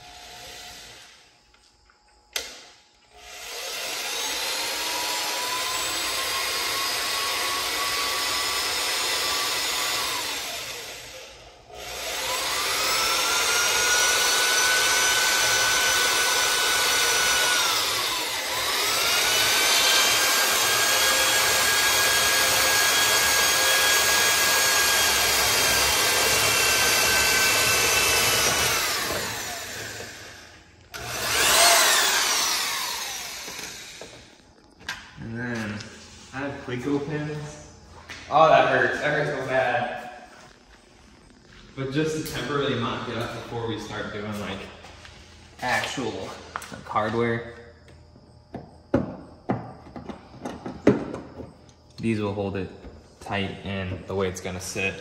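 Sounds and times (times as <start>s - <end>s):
electric drill whining: 0.0s - 1.6s, 2.4s - 34.6s.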